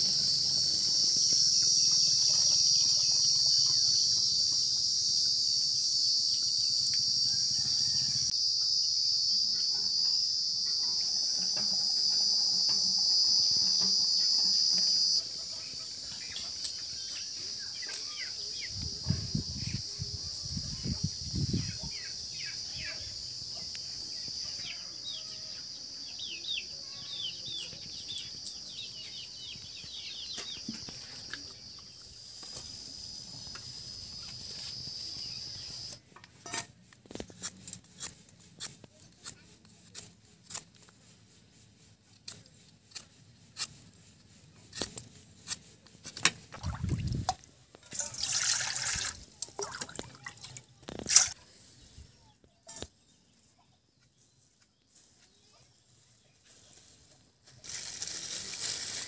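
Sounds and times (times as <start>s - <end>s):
high insect drone: 0.0s - 36.0s
water splashing in a steel bowl: 46.5s - 51.4s.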